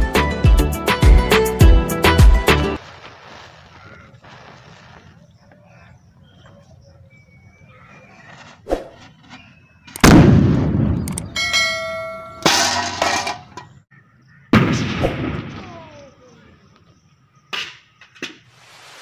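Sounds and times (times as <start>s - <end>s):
firecracker bang: 10.0s - 11.0s, 14.6s - 16.0s
metal bucket clanging: 11.4s - 13.8s.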